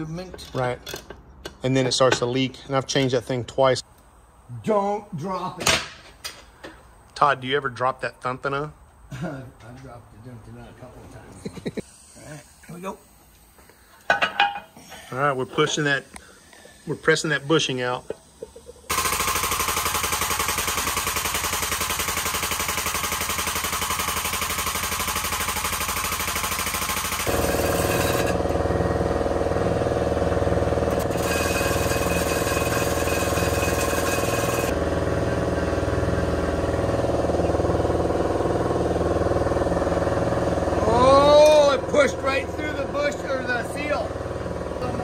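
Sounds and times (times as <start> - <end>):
shop machine running with rattle: 18.8 - 45.0.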